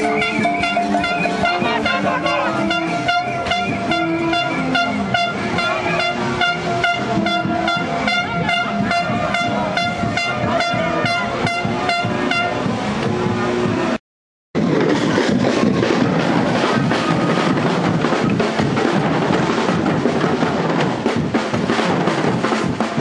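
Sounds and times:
crowd noise: 0:00.0 - 0:14.0, 0:14.6 - 0:23.0
drums beating fast rhythm: 0:00.0 - 0:14.0, 0:14.6 - 0:23.0
horn notes: 0:00.0 - 0:14.0.

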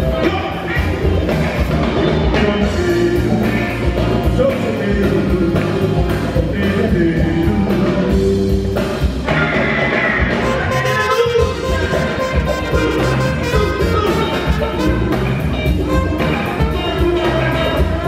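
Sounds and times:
man singing into a microphone: 0:00.0 - 0:08.2
bass guitar: 0:00.0 - 0:18.0
drum beat: 0:10.4 - 0:18.0.

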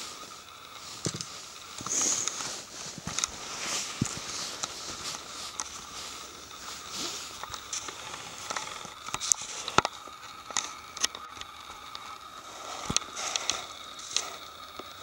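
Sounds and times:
footsteps on leaf litter: 0:00.9 - 0:08.4.

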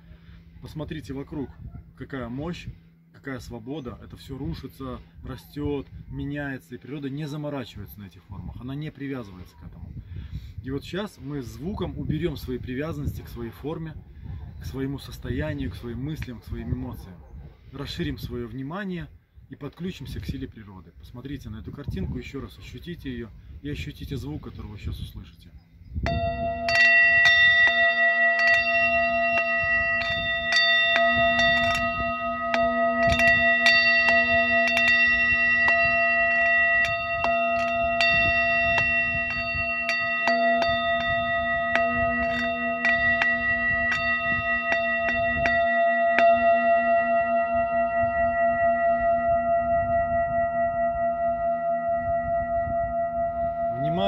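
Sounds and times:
singing bowl ringing: 0:26.0 - 0:54.0.

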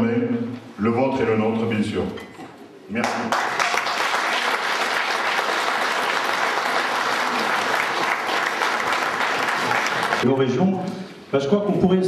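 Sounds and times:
audience applauding: 0:03.0 - 0:10.2.

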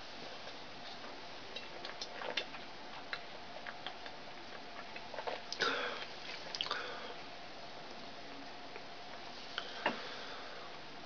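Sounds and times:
mouth clicks: 0:05.5 - 0:06.8
man swallowing: 0:05.5 - 0:07.0.

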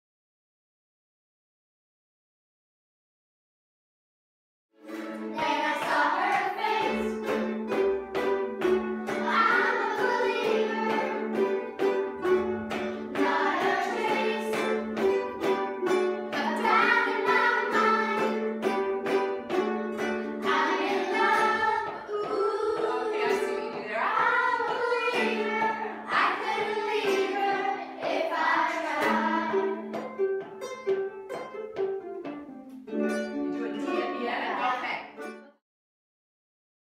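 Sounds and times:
ukuleles strumming: 0:04.8 - 0:35.6
children singing: 0:04.9 - 0:30.2.

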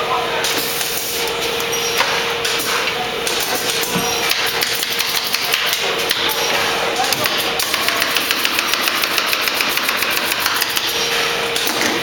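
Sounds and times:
sharp clicks and knocks of tools: 0:07.0 - 0:10.9.

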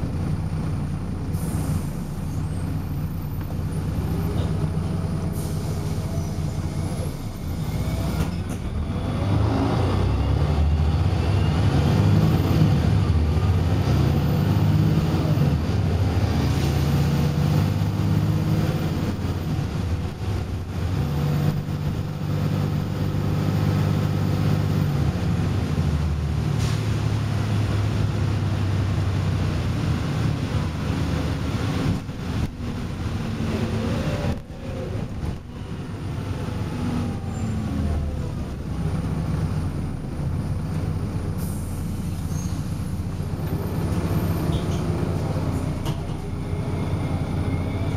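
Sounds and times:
bus diesel engine: 0:00.0 - 0:47.9.

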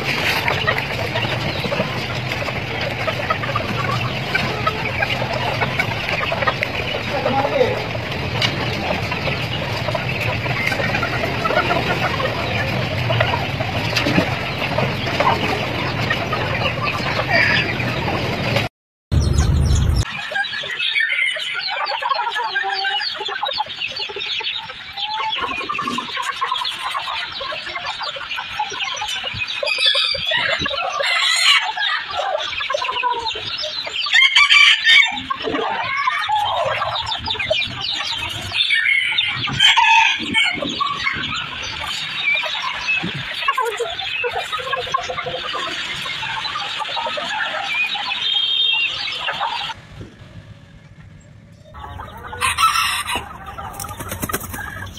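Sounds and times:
rumbling background noise: 0:00.0 - 0:20.4, 0:35.2 - 0:54.9
chickens clucking: 0:00.0 - 0:54.9
rooster crowing: 0:34.1 - 0:35.3, 0:51.8 - 0:53.7.

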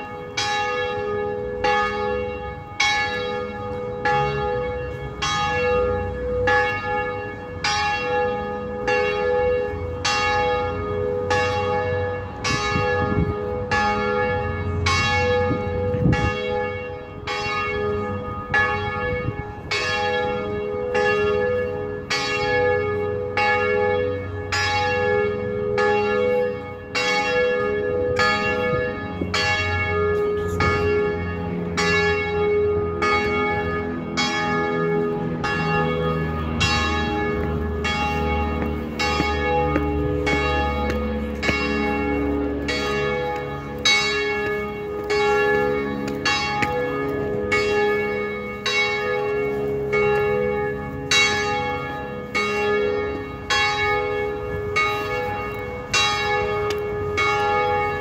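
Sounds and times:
church bells ringing: 0:00.0 - 0:58.0.

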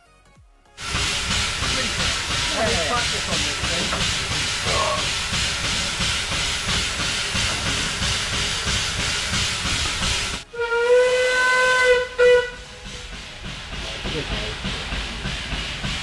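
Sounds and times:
steam locomotive hissing: 0:00.8 - 0:16.0
steam whistle long note: 0:10.5 - 0:12.8.

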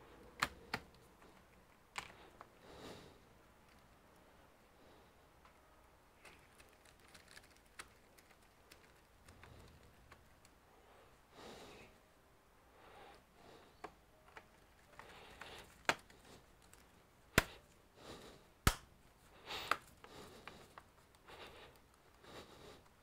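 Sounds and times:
gloved hands rustling: 0:06.2 - 0:10.6, 0:13.5 - 0:23.0
plastic laptop cover clicking: 0:14.3 - 0:16.8.

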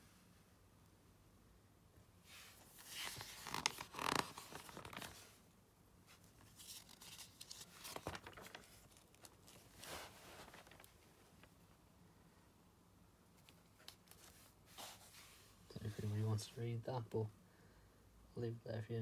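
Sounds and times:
magazine pages rustling: 0:02.5 - 0:05.4, 0:06.1 - 0:11.6, 0:13.4 - 0:16.4.

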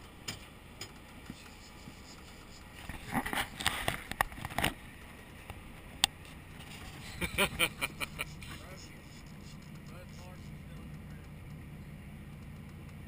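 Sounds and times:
knocks and scrapes: 0:00.0 - 0:04.8, 0:06.2 - 0:07.2
boat engine running: 0:00.0 - 0:13.0.

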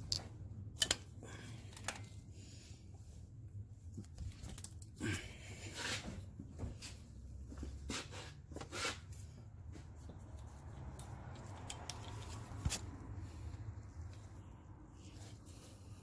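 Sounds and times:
metal tool clicking and scraping: 0:00.8 - 0:01.1, 0:11.0 - 0:12.8.

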